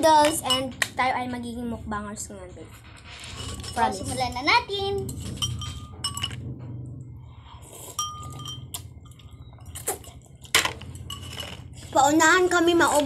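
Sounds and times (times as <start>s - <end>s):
utensils clinking against bowls: 0.0s - 0.9s, 3.0s - 6.4s, 7.6s - 13.0s
steady low hum: 0.0s - 13.0s.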